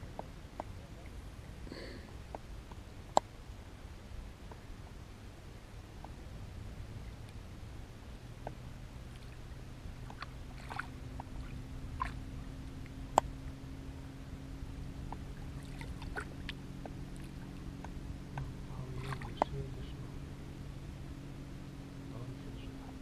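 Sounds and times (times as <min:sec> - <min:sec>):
steady low hum: 0:00.0 - 0:23.0
water lapping and splashing: 0:02.8 - 0:21.2.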